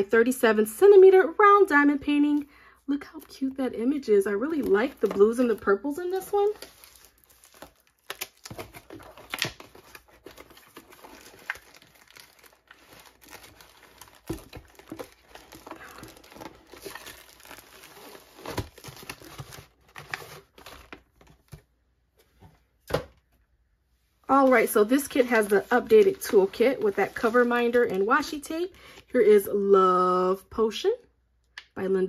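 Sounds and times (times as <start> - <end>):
plastic wrap crinkling and tearing: 4.4 - 21.6
cardboard box opened: 6.5 - 21.6.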